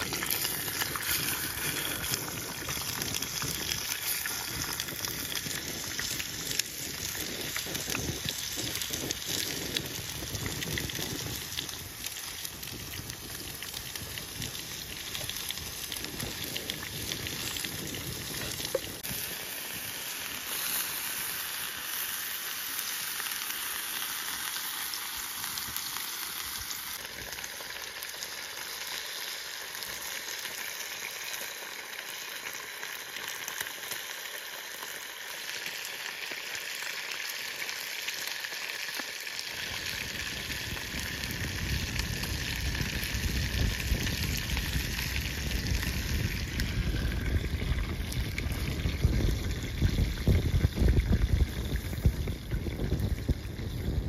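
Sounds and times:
steaks sizzling in skillet: 0.0s - 52.1s.

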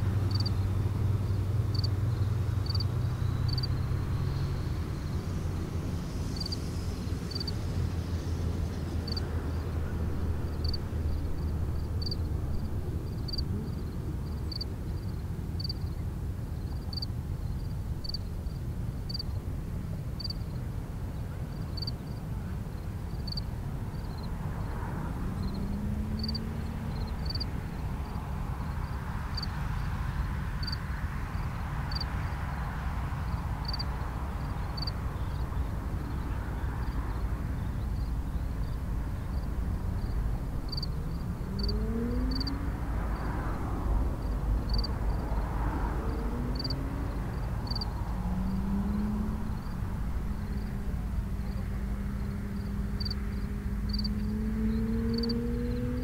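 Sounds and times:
low outdoor rumble: 0.0s - 56.0s
rising engine tone: 46.0s - 56.0s.

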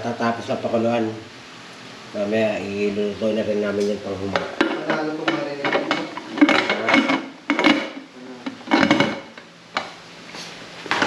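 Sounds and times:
metal cookware clinking and scraping: 4.4s - 7.9s.

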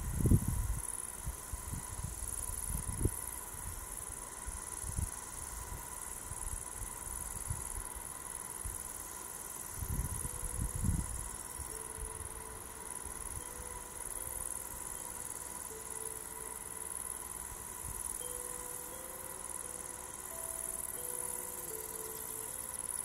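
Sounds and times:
wind buffeting microphone: 0.0s - 0.8s, 9.8s - 11.3s
crickets chirring: 0.0s - 23.0s.

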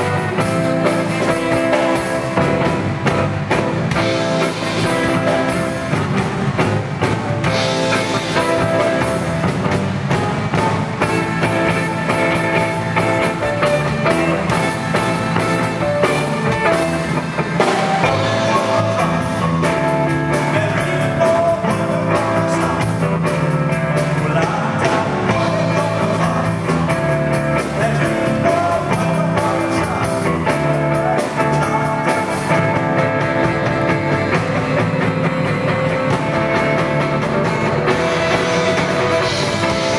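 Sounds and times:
tenor saxophone lead: 0.0s - 6.4s, 7.2s - 22.9s, 31.0s - 39.9s
rock and roll band playing: 0.0s - 39.9s.

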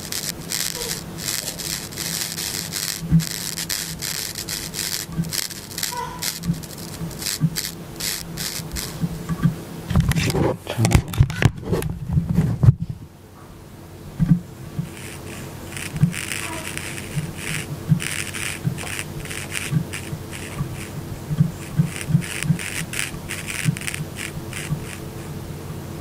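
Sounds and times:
potentiometer crackling: 0.0s - 9.6s, 14.7s - 25.5s
steady low hum: 0.0s - 26.0s.

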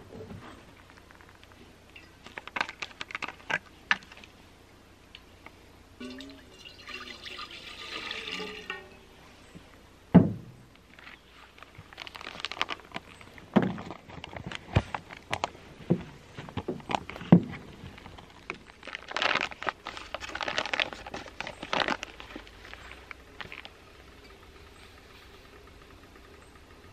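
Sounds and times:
water pouring into metal pot: 6.0s - 9.1s.

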